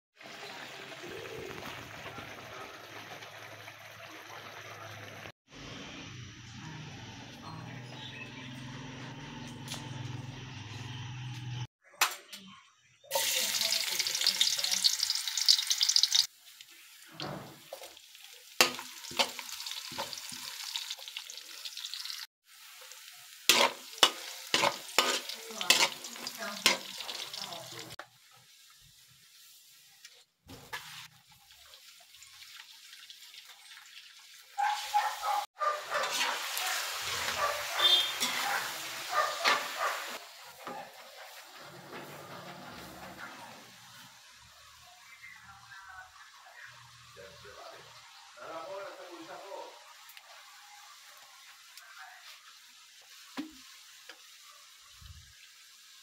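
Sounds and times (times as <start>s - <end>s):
food sizzling in hot oil: 13.1s - 42.9s, 43.5s - 56.0s.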